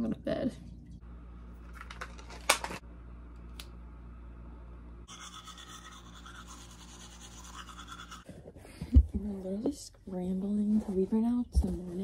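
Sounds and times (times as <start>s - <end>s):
low hum: 0.1s - 12.0s
toothbrush scrubbing teeth: 5.1s - 8.3s.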